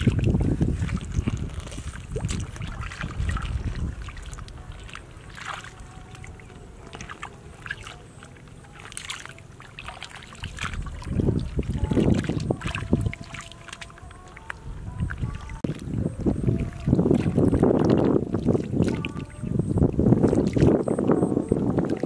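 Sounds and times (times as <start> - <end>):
muddy water sloshing and splashing: 0.0 - 22.0.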